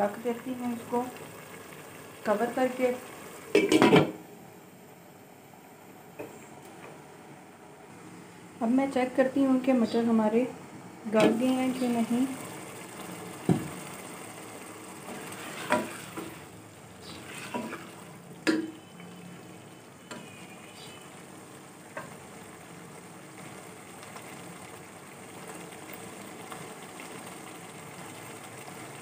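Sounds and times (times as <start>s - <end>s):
food sizzling in a pot: 0.0s - 4.4s, 11.1s - 29.0s
spoon knocking against pot: 18.4s - 18.8s.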